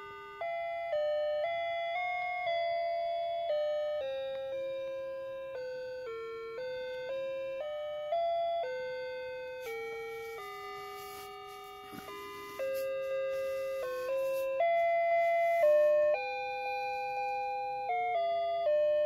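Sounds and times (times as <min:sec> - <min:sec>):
tinny chime-like electronic melody: 0:08.6 - 0:18.9.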